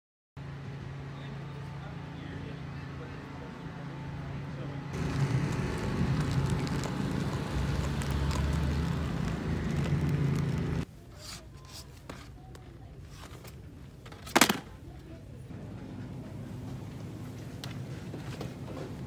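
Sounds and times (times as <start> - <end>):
low engine rumble: 0.4 - 10.9, 14.8 - 19.0
indoor store ambience: 0.4 - 19.0
handling sounds: 6.2 - 15.2.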